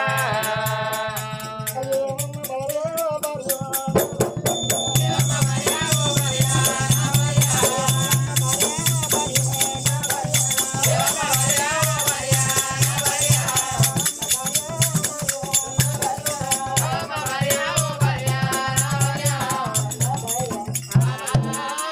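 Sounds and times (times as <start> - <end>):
drum beating steady rhythm: 0.0 - 21.9
jingling bells and rattles: 1.6 - 21.9
person singing wavering melody: 4.6 - 21.9.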